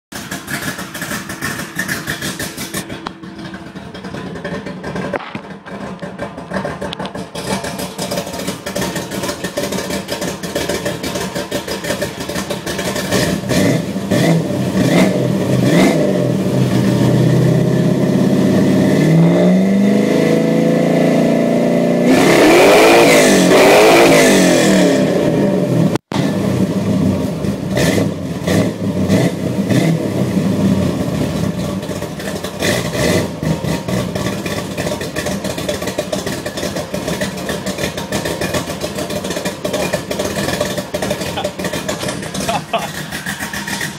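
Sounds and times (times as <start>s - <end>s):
car engine idling and revving: 0.1s - 43.9s.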